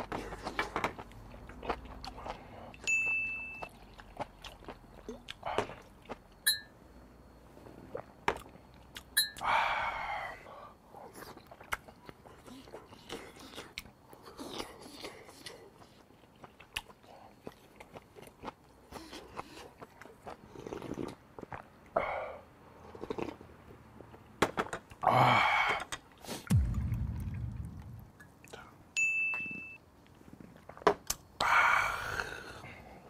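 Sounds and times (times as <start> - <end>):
chewing and slurping: 0.1 - 2.9, 3.6 - 6.3, 11.0 - 21.9.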